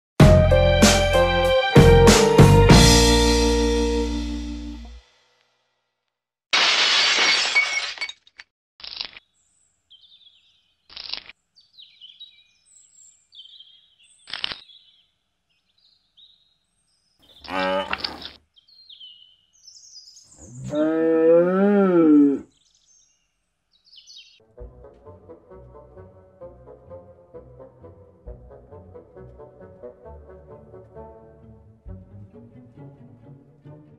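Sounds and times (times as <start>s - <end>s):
cartoon crashing and breaking: 6.5s - 9.2s.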